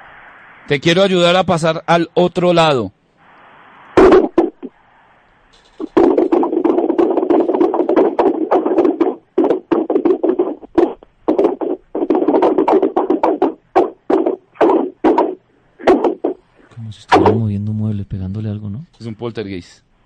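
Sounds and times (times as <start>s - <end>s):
banging and scraping noises: 5.6s - 17.4s.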